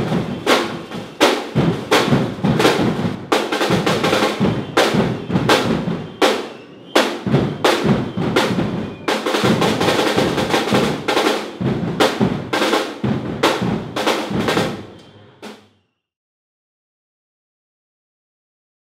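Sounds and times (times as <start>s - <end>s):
marching bass drums pounding: 0.0s - 15.0s.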